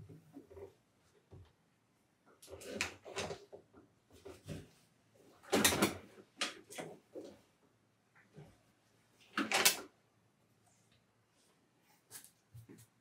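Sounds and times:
clothes rustling into washing machine: 2.4 - 7.6.

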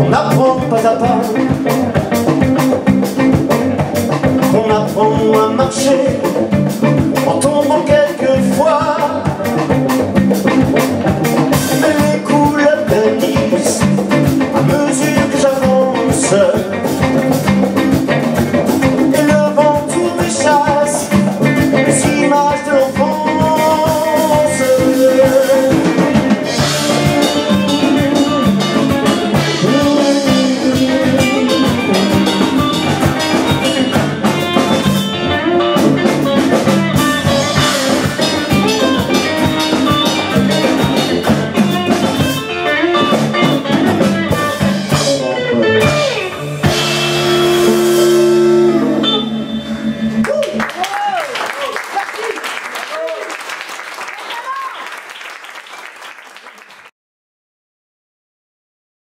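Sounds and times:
drum beat: 0.0 - 45.2
electric guitar: 0.0 - 51.8.

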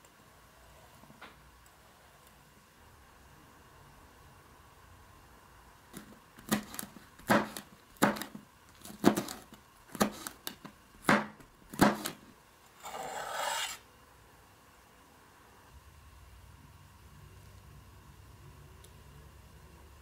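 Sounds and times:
knife chopping on plastic board: 6.0 - 12.2
knife blade scraping board: 12.8 - 13.8.

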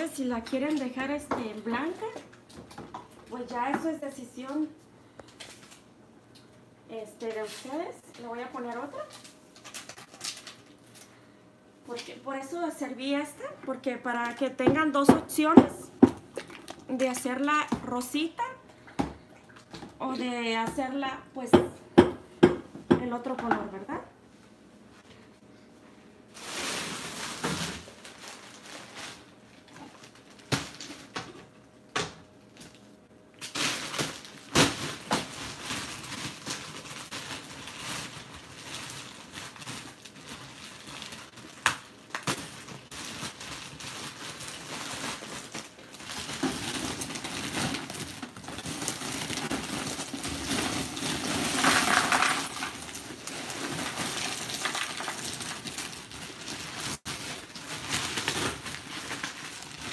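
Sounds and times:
ice cubes clattering in container: 44.4 - 59.9.

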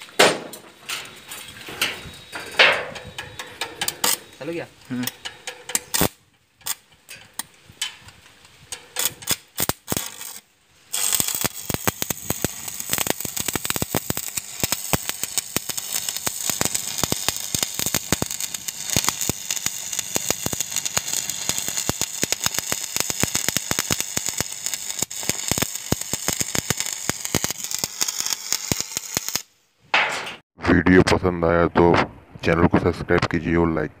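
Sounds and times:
welding arc crackling and popping: 2.9 - 29.5.

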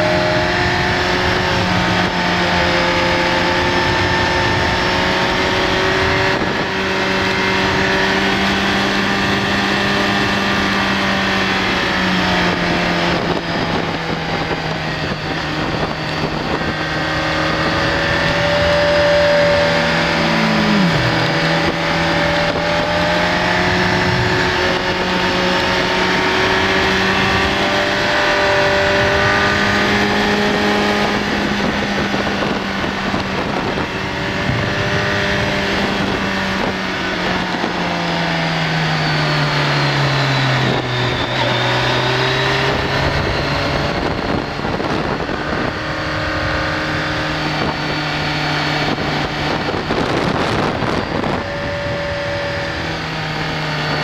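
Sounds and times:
motorcycle engine running: 0.0 - 54.0
wind noise: 0.0 - 54.0.

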